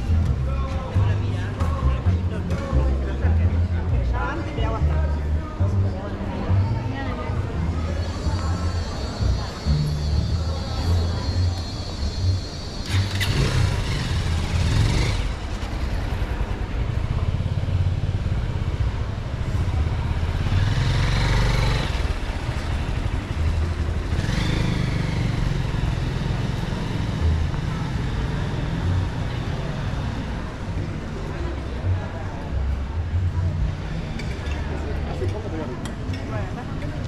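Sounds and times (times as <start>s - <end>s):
motorcycles passing close by: 12.8s - 18.6s, 19.2s - 30.5s.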